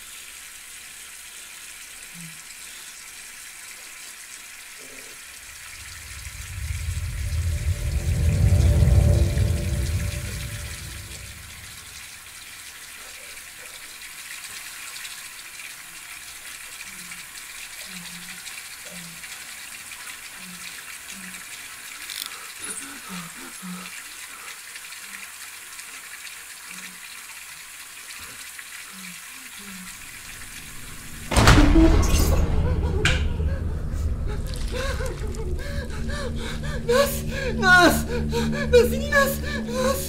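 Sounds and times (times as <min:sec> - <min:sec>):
steady rushing hiss: 0:05.3 - 0:12.3
faint low hums: 0:05.4 - 0:12.2, 0:29.8 - 0:40.0.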